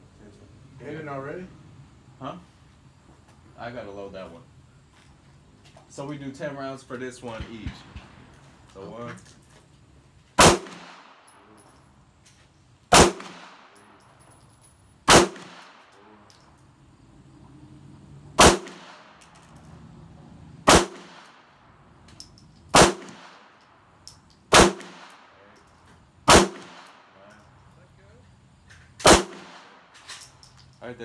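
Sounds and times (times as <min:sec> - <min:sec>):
pistol shots with echo: 0:10.4 - 0:11.4, 0:12.9 - 0:13.9, 0:15.1 - 0:16.0, 0:18.4 - 0:19.2, 0:20.6 - 0:21.5, 0:22.7 - 0:23.6, 0:24.5 - 0:25.4, 0:26.3 - 0:27.2, 0:29.0 - 0:29.8.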